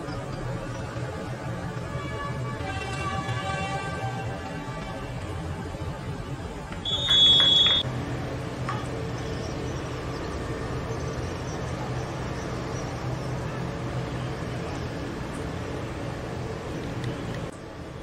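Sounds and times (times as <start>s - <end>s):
referee's whistle blast: 6.8s - 7.8s.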